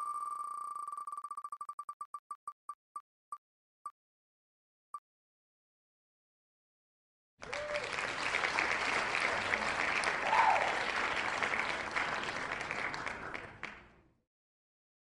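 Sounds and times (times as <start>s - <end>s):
applause sound effect: 7.4s - 14.1s.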